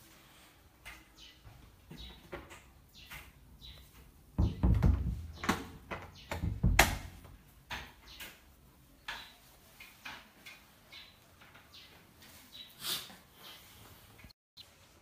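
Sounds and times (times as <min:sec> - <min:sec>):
door bumps: 0:04.4 - 0:07.4.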